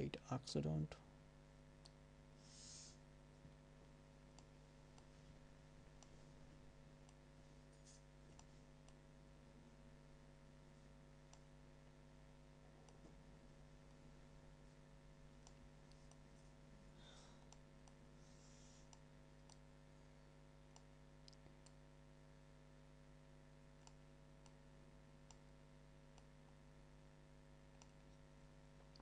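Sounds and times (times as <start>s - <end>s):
faint low hum: 0.0s - 29.0s
computer mouse clicks: 4.3s - 5.1s, 11.3s - 11.5s, 18.8s - 19.6s, 23.8s - 24.6s, 27.8s - 28.2s.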